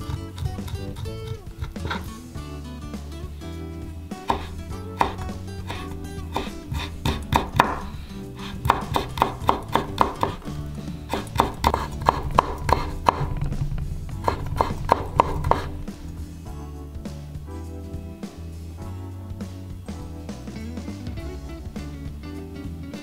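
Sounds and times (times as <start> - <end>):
soft background music: 0.0 - 23.0
knife chopping on cutting board: 4.2 - 10.5, 11.1 - 13.5, 14.2 - 15.9.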